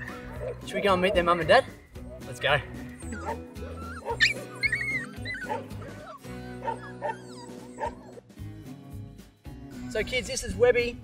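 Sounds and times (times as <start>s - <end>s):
puppies yipping and whimpering: 0.0s - 8.3s
background music: 0.0s - 11.0s.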